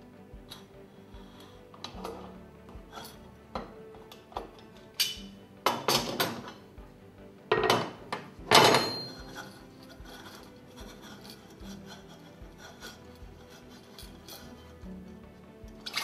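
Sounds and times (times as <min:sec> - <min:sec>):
metal pump scraping and rubbing: 0:00.5 - 0:06.7, 0:07.6 - 0:16.0
metal tools clanking on wooden bench: 0:03.6 - 0:06.6, 0:07.5 - 0:10.4.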